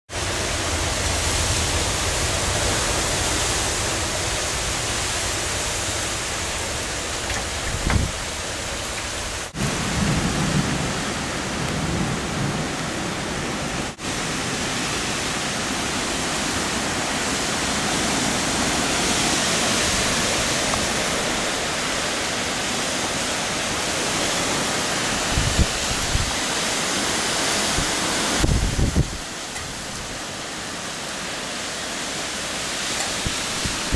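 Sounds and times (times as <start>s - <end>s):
heavy rain pouring: 0.1s - 33.9s
thunder rumbling: 9.5s - 13.4s.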